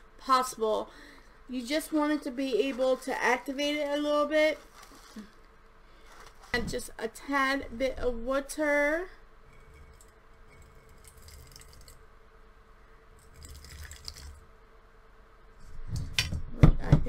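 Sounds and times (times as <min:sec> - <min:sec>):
water trickling into bowl: 0:09.5 - 0:12.0, 0:13.2 - 0:14.4.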